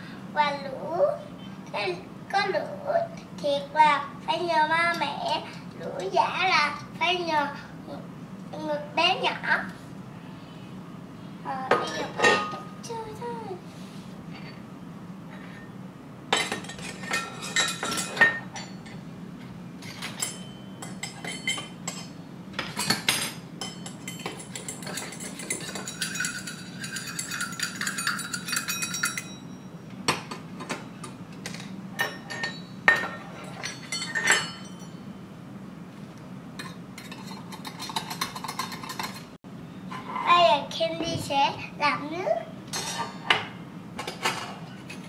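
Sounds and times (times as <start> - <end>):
steel toy pots clinking: 23.8 - 29.4.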